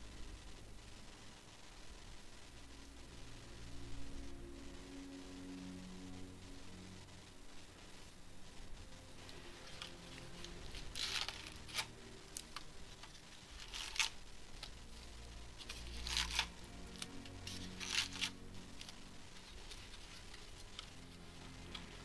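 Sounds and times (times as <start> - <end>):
faint music: 0.0 - 22.0
packaging tearing and crinkling: 9.3 - 14.8, 15.6 - 21.0.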